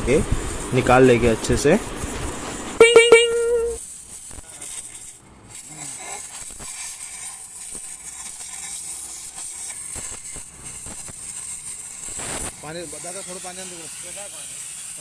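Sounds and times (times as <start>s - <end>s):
gas cutting torch hissing: 0.0s - 15.0s.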